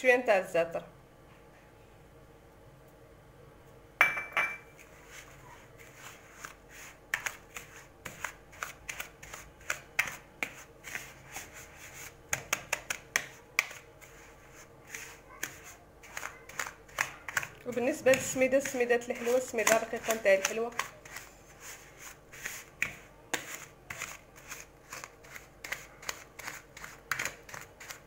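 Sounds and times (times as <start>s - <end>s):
whisk clinking and scraping bowl: 14.0s - 28.0s.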